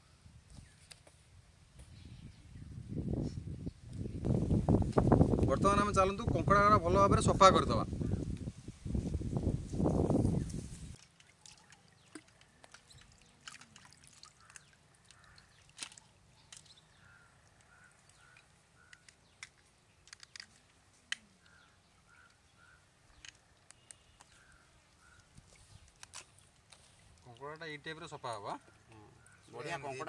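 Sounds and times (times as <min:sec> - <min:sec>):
water dripping: 0:11.0 - 0:20.5, 0:23.2 - 0:28.5
bird calling: 0:14.3 - 0:19.5, 0:21.2 - 0:25.8, 0:28.1 - 0:30.0
crab shells cracking: 0:18.9 - 0:20.6.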